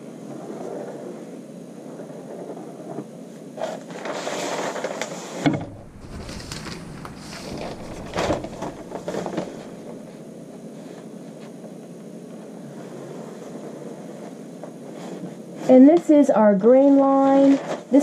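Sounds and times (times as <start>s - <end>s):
paper rustling and sliding: 5.6s - 10.2s.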